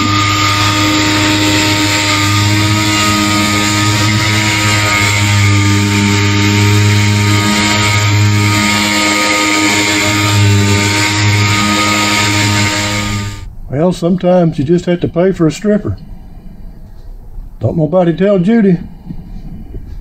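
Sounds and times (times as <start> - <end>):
air sander whining: 0.0 - 13.5.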